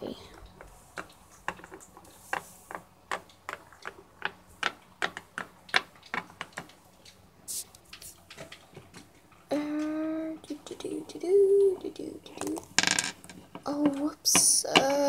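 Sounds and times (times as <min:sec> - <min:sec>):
plastic figurines tapping on table: 0:12.4 - 0:15.0.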